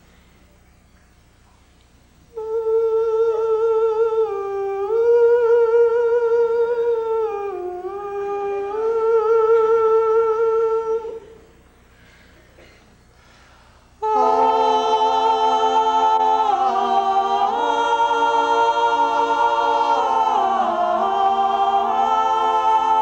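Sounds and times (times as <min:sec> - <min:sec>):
man humming a melody: 0:02.3 - 0:11.4.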